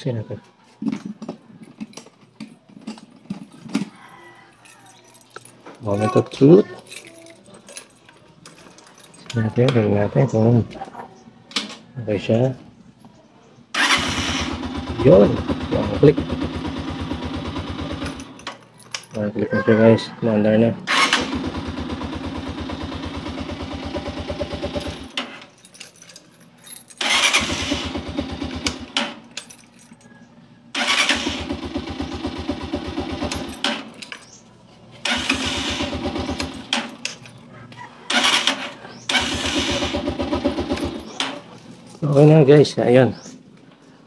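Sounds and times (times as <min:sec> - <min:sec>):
electric starter cranking engine: 0:13.7 - 0:18.5, 0:20.9 - 0:25.2, 0:27.0 - 0:29.2, 0:30.7 - 0:33.9, 0:35.0 - 0:37.1, 0:38.1 - 0:41.4.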